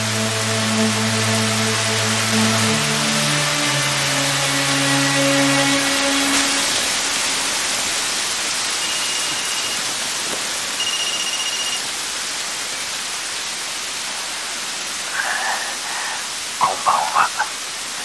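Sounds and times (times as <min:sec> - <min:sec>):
heavy rain pouring: 0:00.0 - 0:18.0
faint high beeps: 0:08.7 - 0:10.0, 0:10.7 - 0:11.9.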